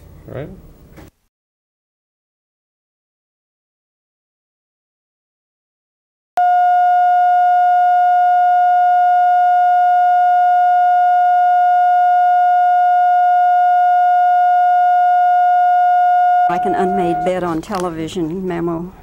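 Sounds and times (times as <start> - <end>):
steady test tone: 6.4 - 18.5.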